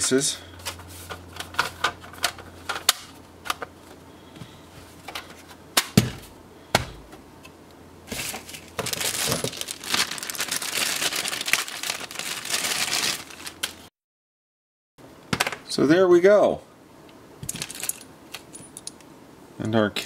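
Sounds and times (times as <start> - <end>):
plastic packaging crinkling: 8.1 - 13.9.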